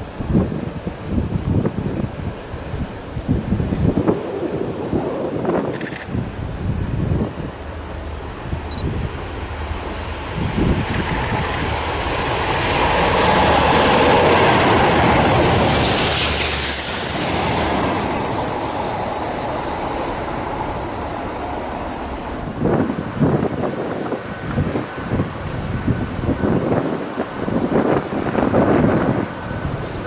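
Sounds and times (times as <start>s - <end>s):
diesel locomotive engine rumble: 0.0s - 30.0s
hissing rush: 3.9s - 24.4s.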